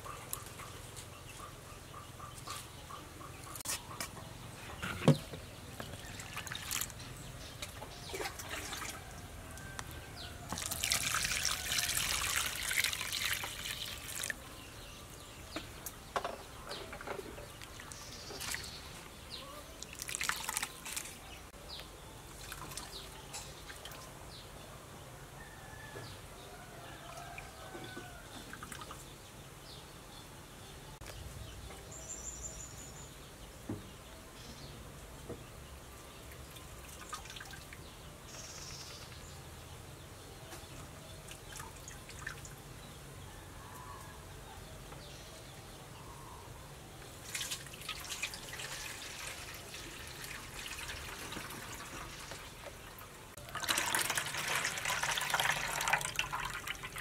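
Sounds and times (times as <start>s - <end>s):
water squelching in plastic bowl: 5.9s - 7.0s, 10.5s - 14.4s, 19.8s - 21.2s
steady water splashing: 10.5s - 14.4s, 47.2s - 57.0s.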